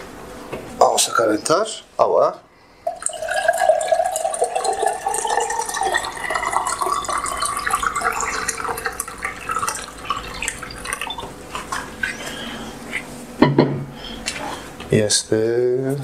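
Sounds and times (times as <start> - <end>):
water pouring into kettle: 2.8 - 11.8.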